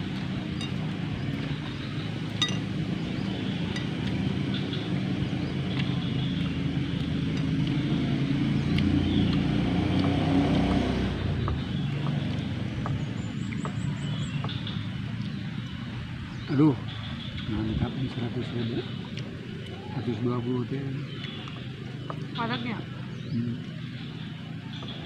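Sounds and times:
vehicle engine droning: 0.0s - 25.0s
plates and skewers clinking: 0.5s - 0.8s, 2.4s - 2.8s.

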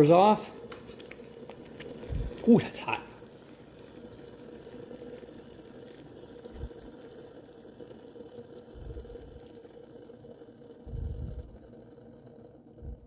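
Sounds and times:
water bubbling in kettle: 0.0s - 13.0s
soft low thumps: 2.0s - 2.4s, 10.9s - 11.6s, 12.8s - 13.0s.

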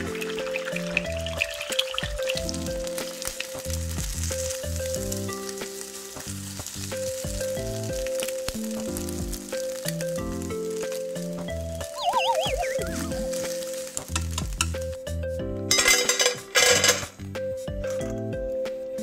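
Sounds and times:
egg sizzling in a frying pan: 0.0s - 18.0s
background music: 0.0s - 19.0s
chopsticks clicking and scraping: 13.4s - 14.8s.

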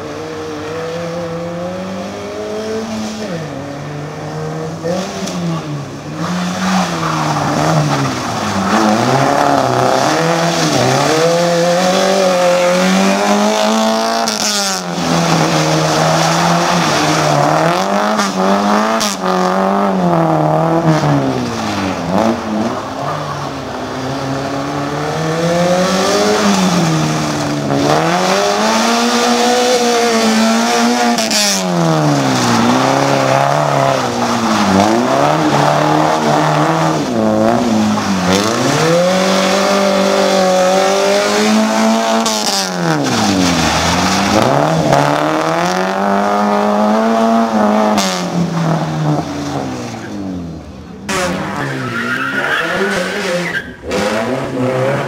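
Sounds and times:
car engine revving hard: 0.0s - 22.7s, 24.1s - 49.6s, 52.4s - 55.0s
tyres squealing: 51.4s - 54.0s.

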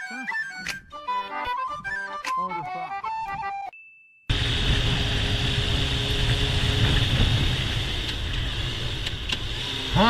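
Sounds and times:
motorcycle engine running: 4.3s - 10.0s
wind and road noise: 4.3s - 10.0s.

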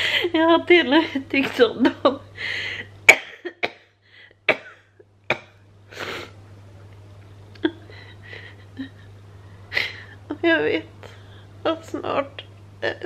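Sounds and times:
low steady hum: 0.0s - 13.0s
woman speaking: 0.2s - 2.2s, 10.3s - 13.0s
sniffing: 5.9s - 6.4s.

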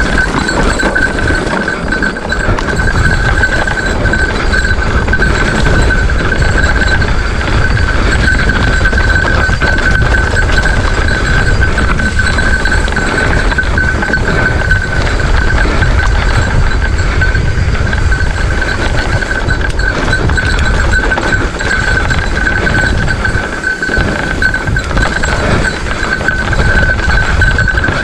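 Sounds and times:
bike rattling over bumps: 0.0s - 28.0s
bike tyres rumbling on dirt: 0.0s - 28.0s
wind buffeting microphone: 0.0s - 28.0s.

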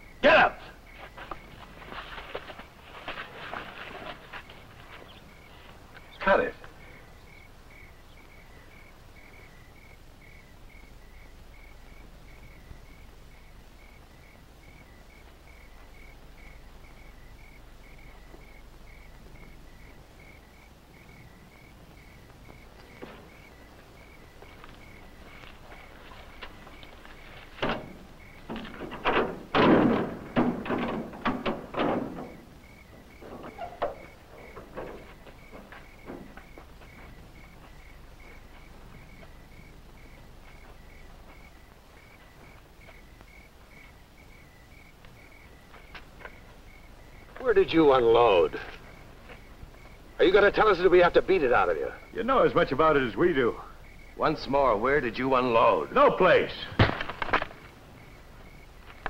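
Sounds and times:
crickets chirping: 0.0s - 59.0s
trailer door clanks and thuds: 27.6s - 32.5s, 33.2s - 36.6s.

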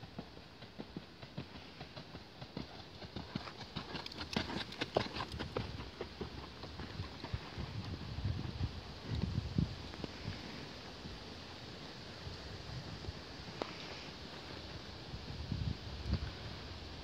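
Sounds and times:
horse hooves on sand: 0.0s - 12.2s.

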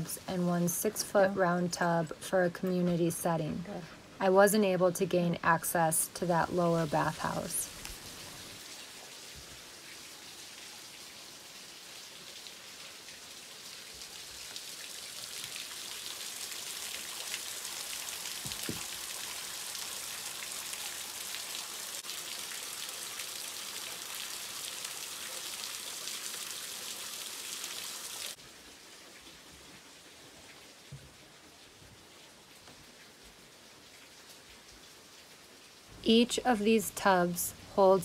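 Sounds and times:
water spattering onto rocks: 18.2s - 19.1s.

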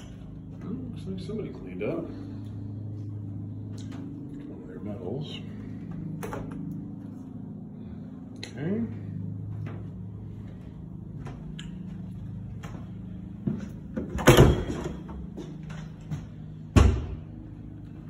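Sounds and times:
steady low hum: 0.0s - 18.0s
closet doors opening and closing: 13.9s - 15.9s.

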